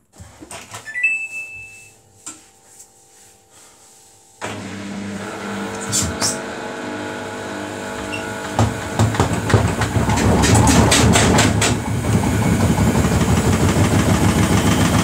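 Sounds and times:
washing machine drum whirring: 0:04.4 - 0:15.0
sharp knocks: 0:08.6 - 0:11.8.

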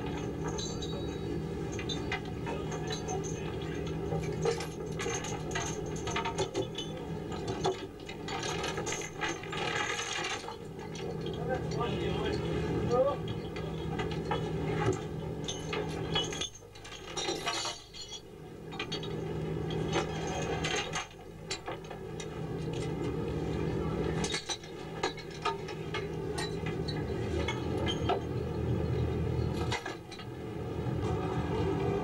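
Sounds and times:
chain and shackles clinking: 0:00.0 - 0:12.5, 0:15.4 - 0:21.2
boat engine humming: 0:25.5 - 0:32.0.

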